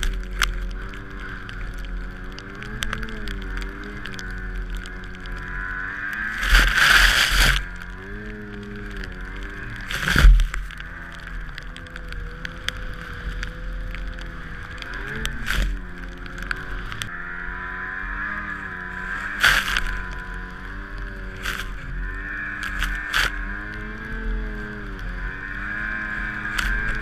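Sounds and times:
snowmobile engine running: 0.0 - 27.0
snow spraying rush: 6.3 - 7.6.

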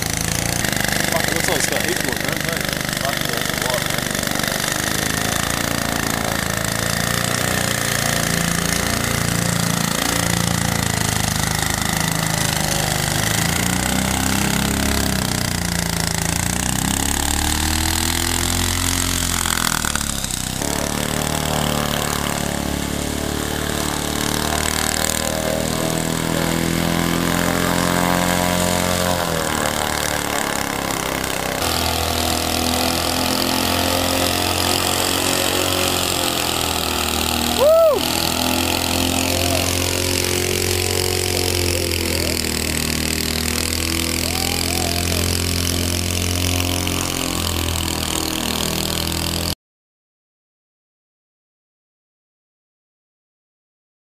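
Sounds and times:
fan boat engine running: 0.0 - 49.6.

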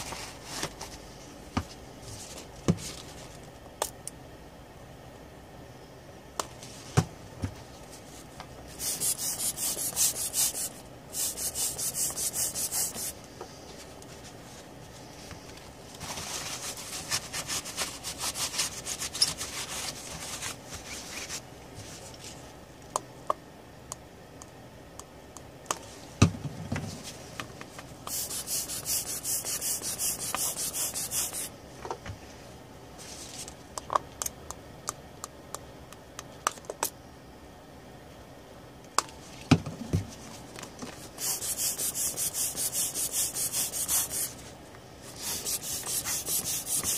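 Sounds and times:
tissue scrubbing circuit board: 45.2 - 46.9.

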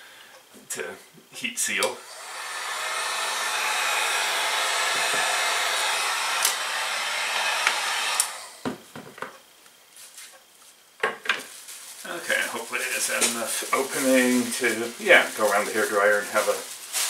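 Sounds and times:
heat gun blowing: 1.9 - 8.8.

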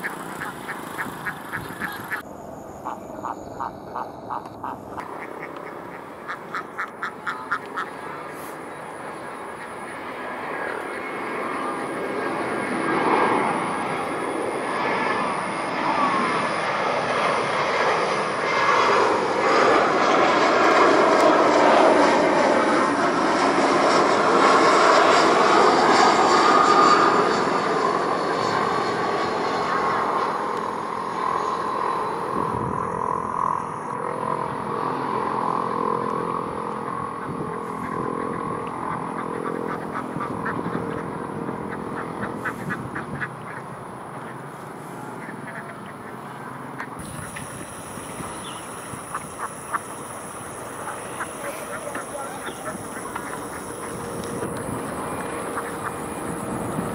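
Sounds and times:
jet airliner flying low past: 0.0 - 56.9.

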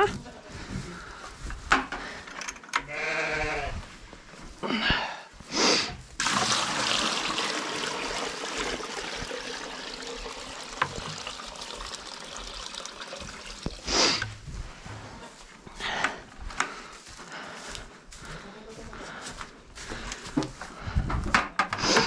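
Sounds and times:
goat bleating: 2.9 - 3.8
water pouring and splashing: 6.2 - 14.9.

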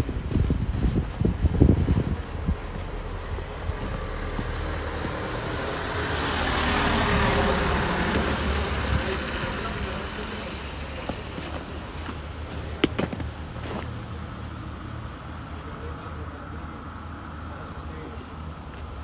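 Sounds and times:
vehicle driving past: 3.0 - 11.0.

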